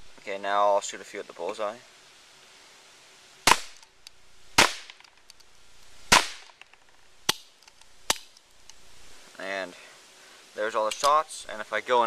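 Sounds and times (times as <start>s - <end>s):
cap gun shots: 3.5s - 3.8s, 4.6s - 5.1s, 6.1s - 6.7s.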